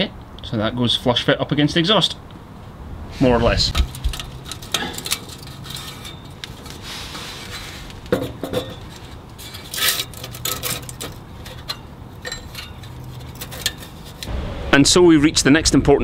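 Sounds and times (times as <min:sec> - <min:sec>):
light metallic clinks and rubbing: 0:03.7 - 0:14.3.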